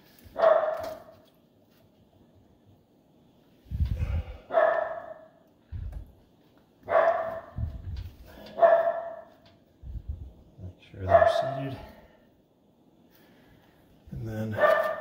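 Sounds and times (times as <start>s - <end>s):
dog barking: 0.3s - 1.1s, 4.4s - 5.4s, 6.8s - 7.7s, 8.5s - 9.4s, 11.0s - 11.9s, 14.6s - 15.0s
dull low thuds: 7.4s - 8.2s.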